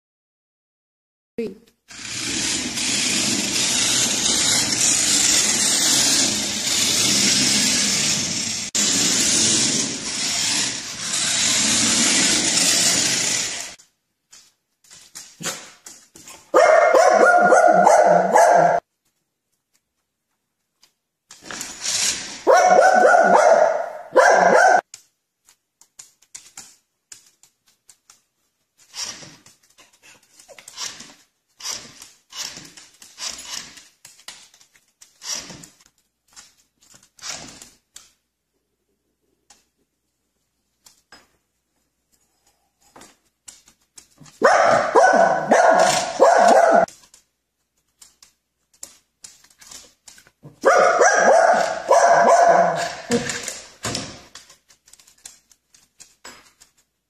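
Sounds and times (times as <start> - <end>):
small dog barking: 16.5 - 18.8, 22.4 - 24.8, 44.4 - 46.9, 50.6 - 53.2.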